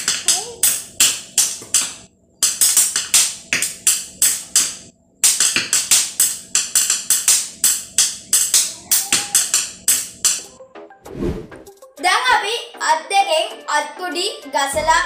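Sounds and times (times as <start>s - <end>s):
pencils tapping on glass: 0.0s - 10.4s.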